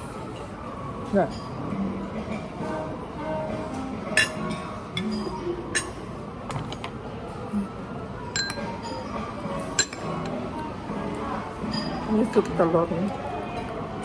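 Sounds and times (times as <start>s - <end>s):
murmur of voices: 0.0s - 14.0s
spoon clinking on ceramic: 4.2s - 6.0s, 8.4s - 9.0s, 9.8s - 10.1s.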